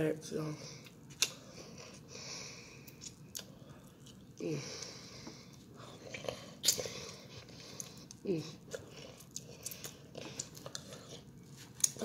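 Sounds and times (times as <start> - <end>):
mouth clicks and smacks: 0.8 - 1.4
person chewing and biting: 5.8 - 12.0.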